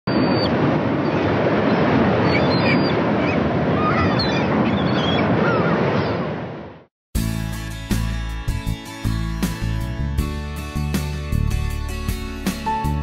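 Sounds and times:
ocean surf: 0:00.1 - 0:06.9
wind: 0:00.1 - 0:06.9
bird calls chirping: 0:02.2 - 0:06.2.

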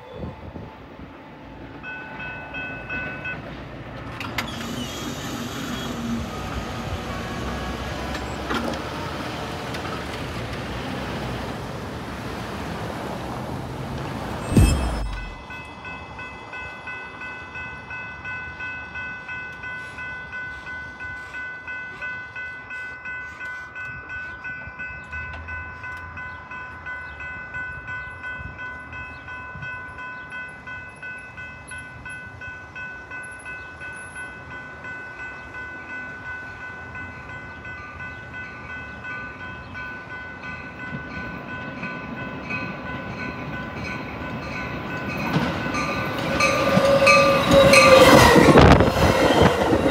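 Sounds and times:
crossing bell ringing: 0:00.0 - 0:49.9
train rumble: 0:00.0 - 0:49.9.

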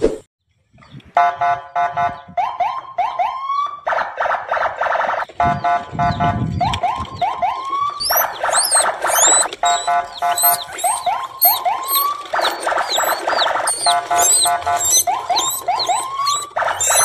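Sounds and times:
electronic alarm siren: 0:01.2 - 0:17.0
short high chirps: 0:08.0 - 0:17.0.

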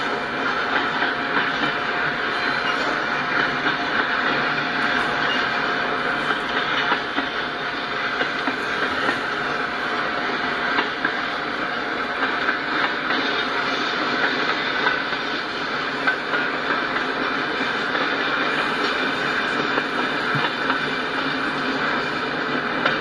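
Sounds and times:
freight train wheels rumbling: 0:00.0 - 0:23.0
sharp clicks and clanks: 0:00.0 - 0:23.0.

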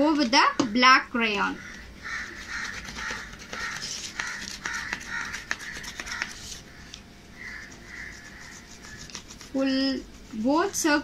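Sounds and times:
crayon rubbing on cardboard: 0:02.1 - 0:06.7, 0:07.4 - 0:11.0.

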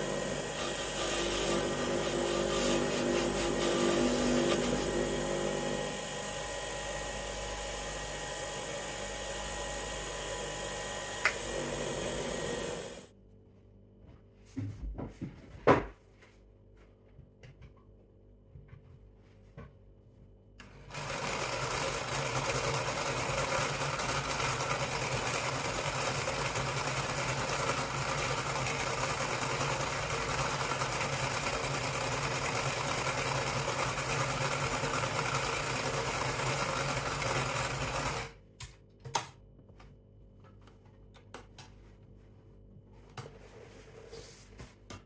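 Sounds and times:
sewing machine running: 0:00.0 - 0:13.1, 0:20.7 - 0:38.4.

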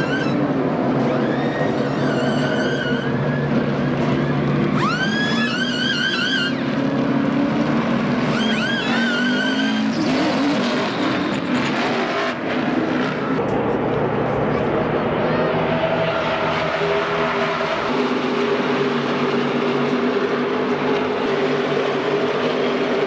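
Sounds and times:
race car engines droning: 0:00.0 - 0:23.0
pneumatic impact wrench whining: 0:04.7 - 0:06.6, 0:08.2 - 0:10.0.

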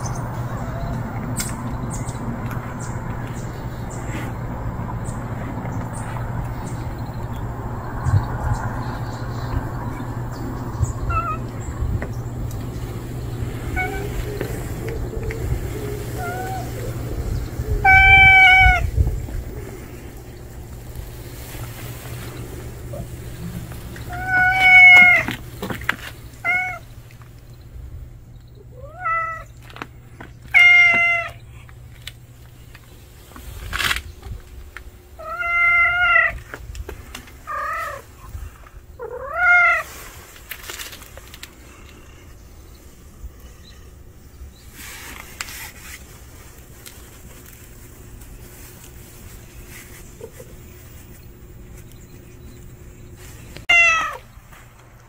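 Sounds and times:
cat meowing: 0:11.1 - 0:11.5, 0:13.7 - 0:14.3, 0:16.0 - 0:16.8, 0:17.7 - 0:19.0, 0:24.1 - 0:25.4, 0:26.4 - 0:26.8, 0:28.8 - 0:29.5, 0:30.5 - 0:31.4, 0:35.2 - 0:36.4, 0:39.0 - 0:39.9, 0:53.7 - 0:54.3.

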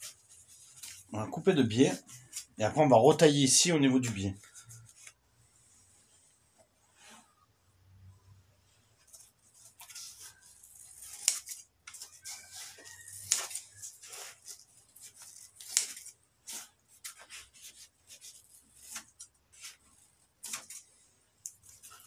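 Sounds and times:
scissors snipping foam: 0:09.1 - 0:22.0.

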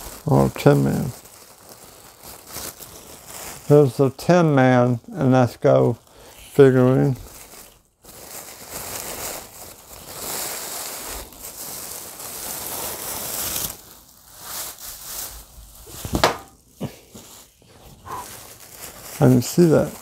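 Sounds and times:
plastic bag rustling and crinkling: 0:00.0 - 0:20.0.

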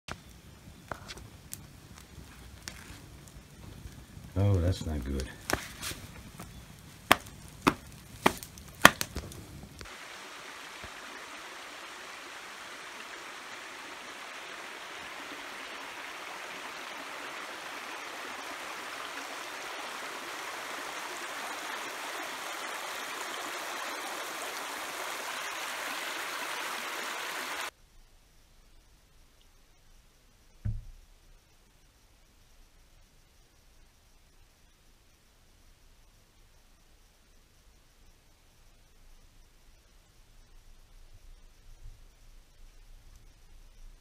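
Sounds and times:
stream flowing over rocks: 0:07.1 - 0:27.7
sharp knocks: 0:30.6 - 0:31.0.

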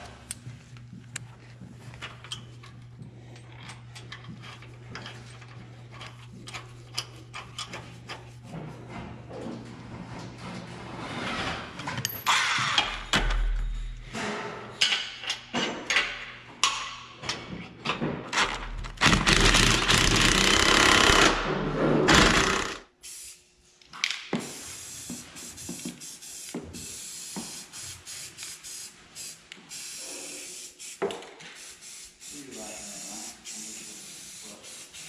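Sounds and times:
impact wrench hammering: 0:19.0 - 0:22.8.

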